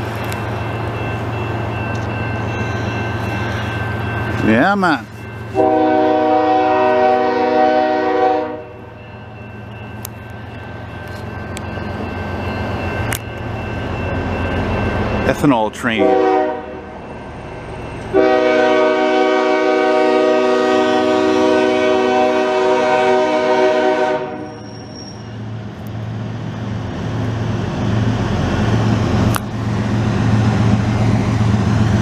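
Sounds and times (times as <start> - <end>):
diesel locomotive and train rumble: 0.0 - 32.0
locomotive air horn: 5.6 - 8.8, 16.0 - 16.8, 18.1 - 24.6.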